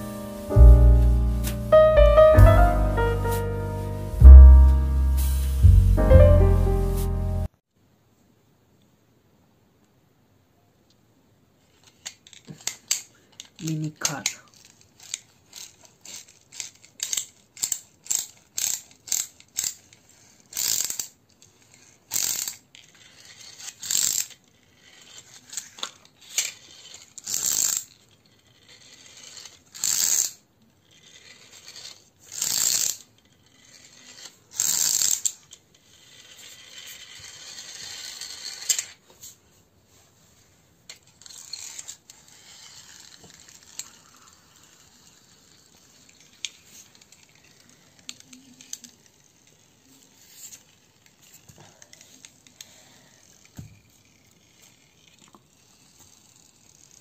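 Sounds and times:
toy car motor whirring: 0:11.6 - 0:39.4, 0:40.9 - 0:57.0.

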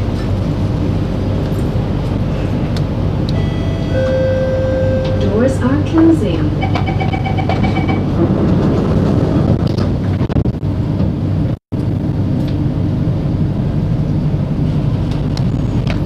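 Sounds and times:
train humming at platform: 0:00.0 - 0:16.0
short beeps: 0:03.3 - 0:05.4, 0:06.6 - 0:08.0.

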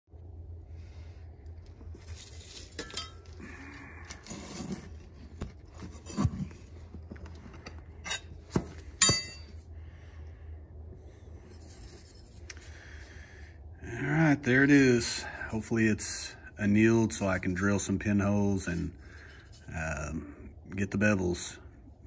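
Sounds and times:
metal tool scraping through ash: 0:02.0 - 0:05.2, 0:09.0 - 0:09.5
metal clinking: 0:02.4 - 0:03.4, 0:09.0 - 0:09.6.

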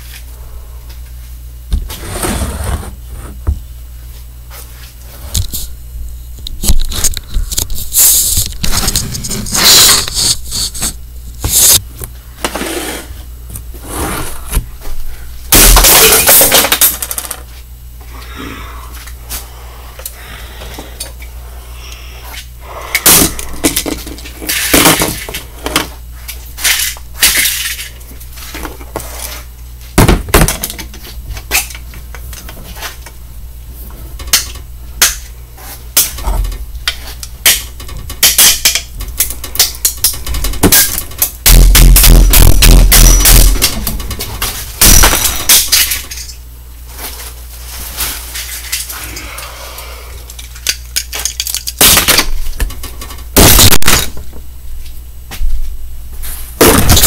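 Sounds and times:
small parts clattering: 0:15.5 - 0:17.5, 0:26.6 - 0:29.4, 0:50.3 - 0:54.4.

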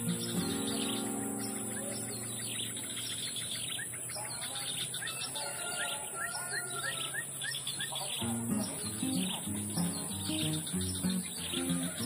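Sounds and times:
steady high hiss: 0:00.0 - 0:04.2, 0:08.2 - 0:12.0
small birds chirping: 0:00.0 - 0:12.0.

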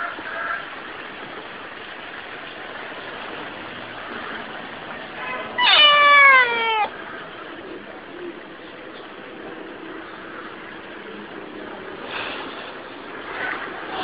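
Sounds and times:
steady background hiss: 0:00.0 - 0:14.0
cat meowing: 0:05.2 - 0:06.9.

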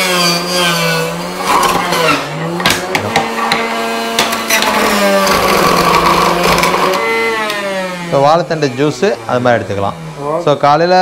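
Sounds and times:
juicer motor humming: 0:00.0 - 0:11.0.

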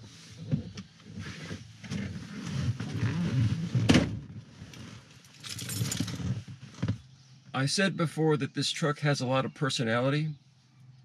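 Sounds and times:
clothing rustling against seat: 0:00.0 - 0:07.0.

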